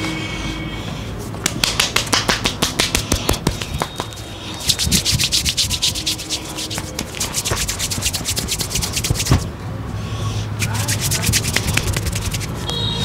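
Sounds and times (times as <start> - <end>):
hands rubbing skin: 1.4 - 9.5, 10.6 - 12.6.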